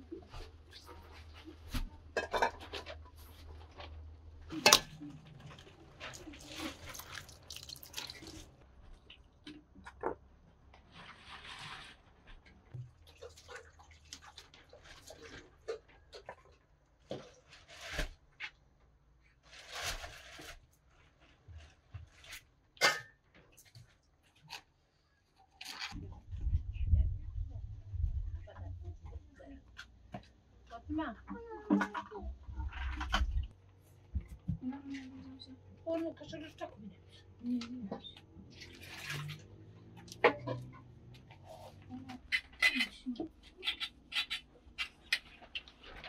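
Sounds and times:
water pouring and splashing: 5.4 - 9.4, 12.7 - 16.4, 38.6 - 39.5.

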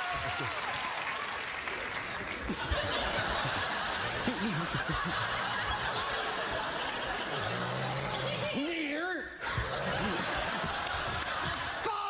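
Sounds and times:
studio audience laughing: 2.2 - 8.8, 9.4 - 12.0.

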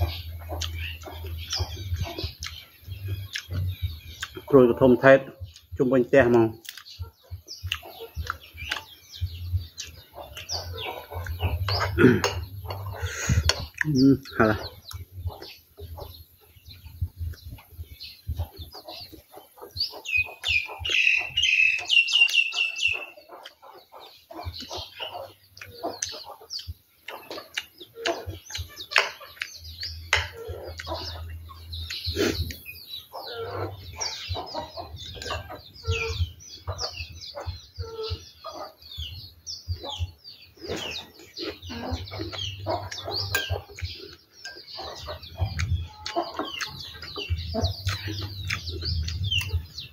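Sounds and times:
chewing: 0.0 - 4.5, 6.6 - 36.1, 40.6 - 49.9
birds chirping: 0.0 - 49.9
chickens clucking: 0.0 - 49.9
rapid repeated chirps: 0.0 - 49.9.

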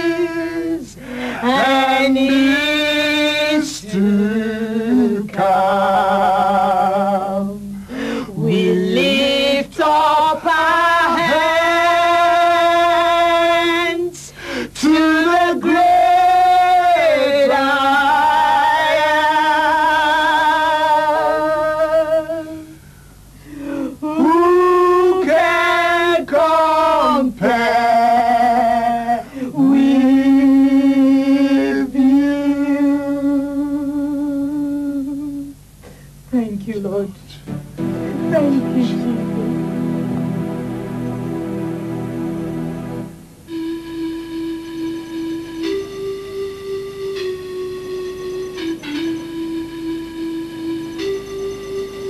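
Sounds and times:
man and woman singing: 0.0 - 22.8, 23.8 - 35.6.

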